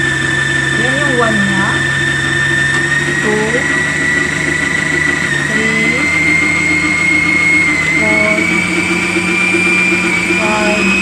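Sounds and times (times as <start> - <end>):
stand mixer motor whining: 0.0 - 11.0.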